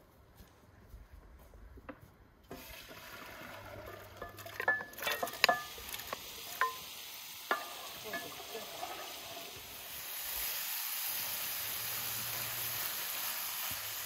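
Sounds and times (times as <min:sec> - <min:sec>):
steady hiss: 0:05.1 - 0:14.0.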